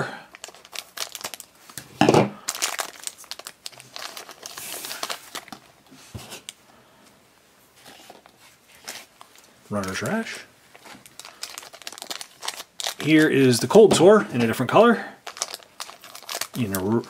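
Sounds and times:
plastic bag crinkling: 0.3 - 5.8, 7.8 - 17.0.

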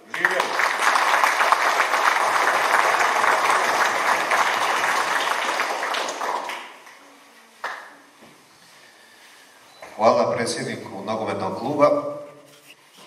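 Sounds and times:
audience clapping: 0.0 - 7.9.

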